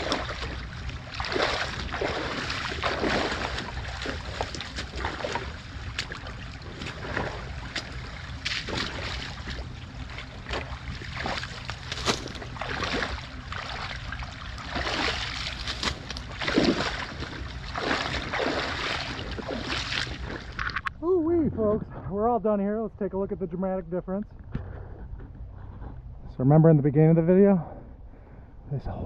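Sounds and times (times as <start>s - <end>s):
boots splashing through water: 0.0s - 20.9s
flowing water: 0.0s - 21.6s.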